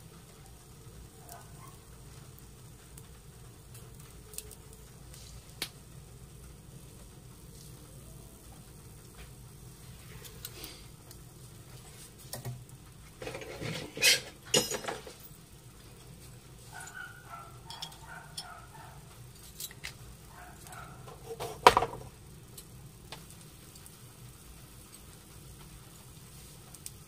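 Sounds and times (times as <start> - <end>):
food sizzling on a griddle: 0.0 - 27.0
steel utensils clinking: 13.2 - 15.3, 16.8 - 18.6.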